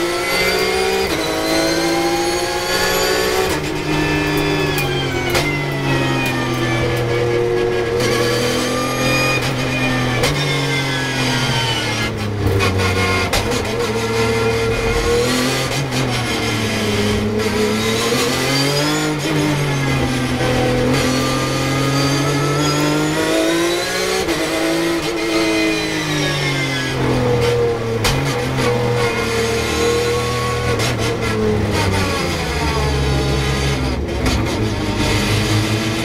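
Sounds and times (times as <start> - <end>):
race car engine revving: 0.0 - 36.0.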